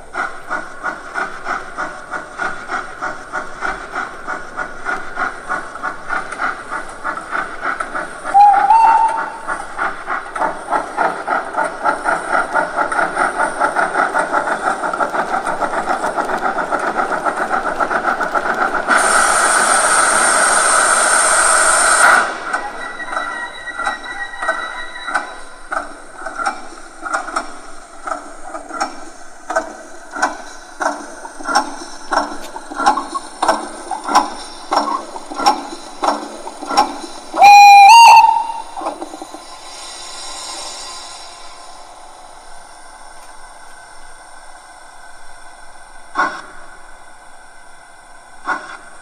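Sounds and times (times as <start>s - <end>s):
steam hiss: 0.0s - 49.0s
steam locomotive exhaust chuffs: 0.0s - 49.0s
locomotive whistle blast: 8.3s - 9.5s, 21.6s - 25.5s, 37.4s - 38.8s.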